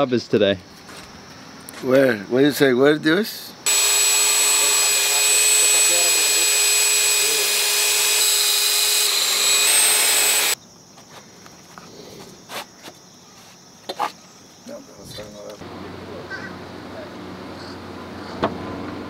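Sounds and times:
power drill boring into stone: 0:03.7 - 0:10.6.

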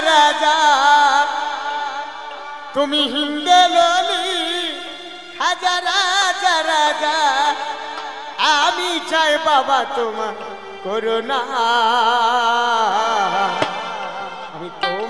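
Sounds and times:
folk music melody with vibrato: 0:13.1 - 0:15.0.

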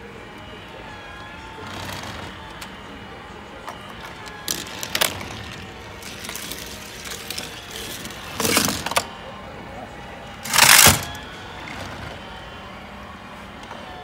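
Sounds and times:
toy car rolling down plastic track: 0:01.6 - 0:02.7, 0:03.7 - 0:09.1, 0:10.4 - 0:12.2
plastic clatters: 0:03.6 - 0:09.1, 0:10.4 - 0:12.2.

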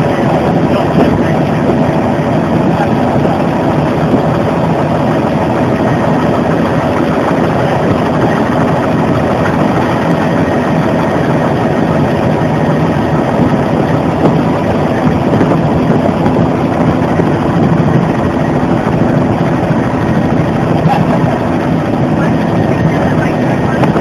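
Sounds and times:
helicopter turbine and rotor drone: 0:00.0 - 0:24.0.

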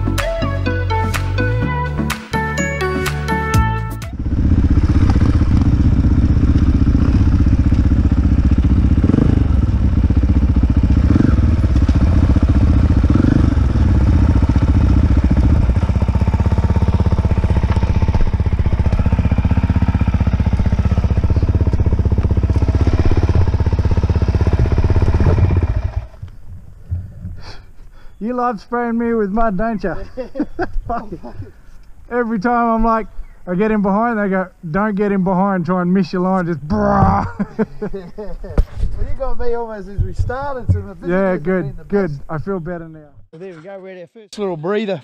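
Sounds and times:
dirt bike engine running: 0:03.6 - 0:27.4.

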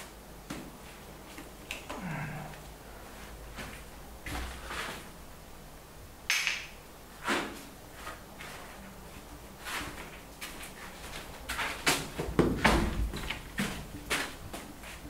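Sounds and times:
rag scuffing on wall: 0:03.1 - 0:05.2, 0:07.2 - 0:15.0.

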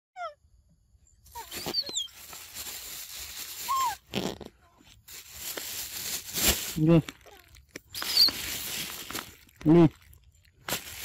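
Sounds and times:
high animal chirps: 0:07.9 - 0:08.5.

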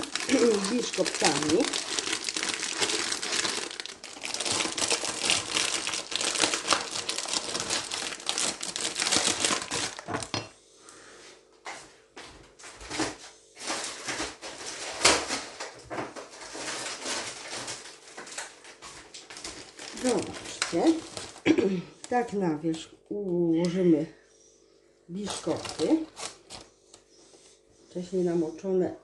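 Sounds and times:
plastic packet crinkling: 0:00.0 - 0:10.4, 0:13.6 - 0:22.3, 0:25.2 - 0:26.7.

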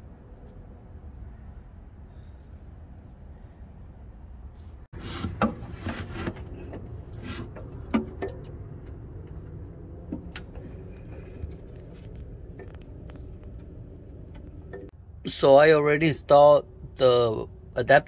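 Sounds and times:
clothing rustling on microphone: 0:10.4 - 0:14.9.

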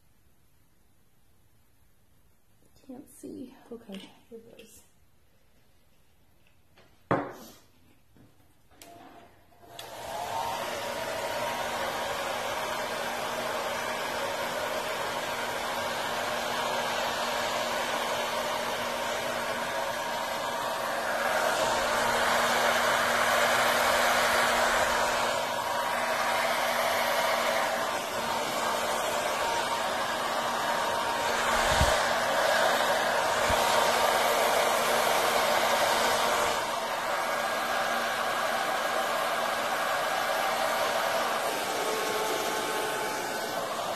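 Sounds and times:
electric blower hissing: 0:09.7 - 0:43.9.

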